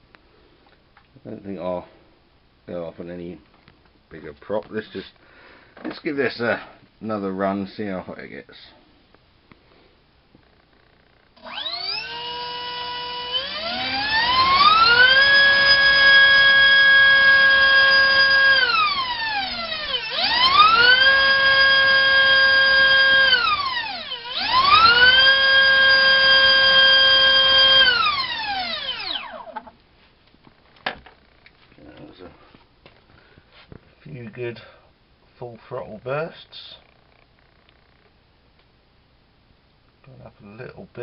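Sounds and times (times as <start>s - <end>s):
electric motor whining: 11.4s - 29.7s.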